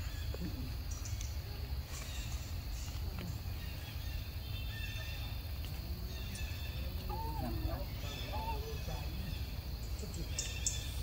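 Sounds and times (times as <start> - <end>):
light ticks and rustles: 0.3 - 3.7.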